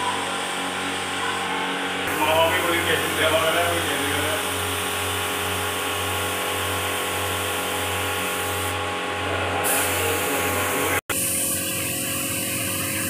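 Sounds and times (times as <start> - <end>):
air compressor pulsing hum: 0.0 - 13.0
spray gun hissing: 2.1 - 9.0, 9.6 - 13.0.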